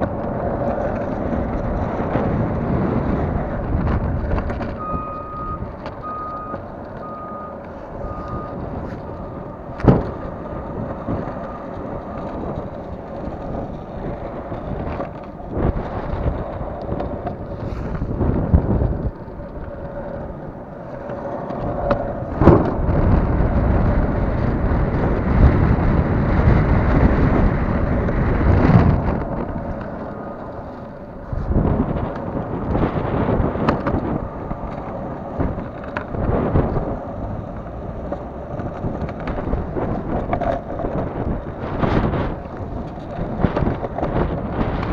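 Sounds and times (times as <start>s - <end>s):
longboard wheels rolling on asphalt: 0.0s - 44.9s
wind on microphone: 0.0s - 44.9s
vehicle reversing beeper: 4.7s - 9.6s.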